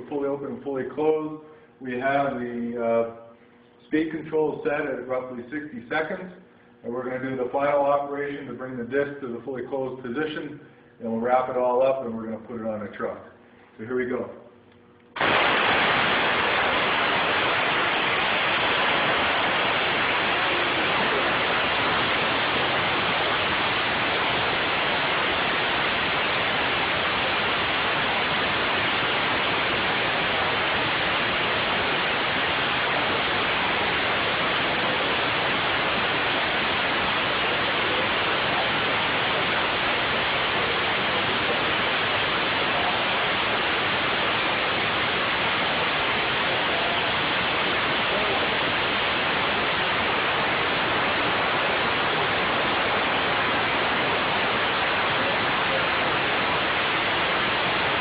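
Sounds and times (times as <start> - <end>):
compressed air hissing from valve exhaust: 15.2 - 58.0.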